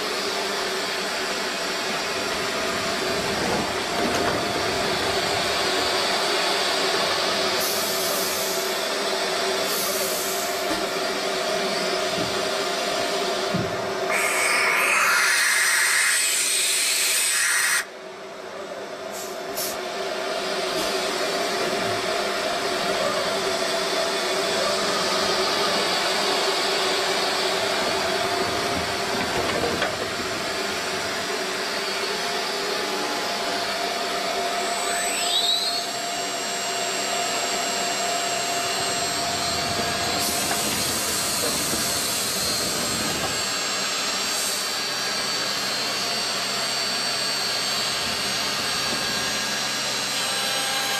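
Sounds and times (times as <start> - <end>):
milling machine spindle whine: 20.3 - 50.9.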